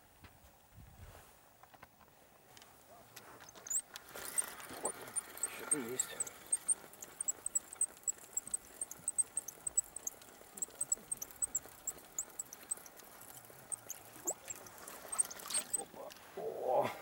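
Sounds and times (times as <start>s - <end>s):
high-pitched chirps: 3.5s - 15.8s.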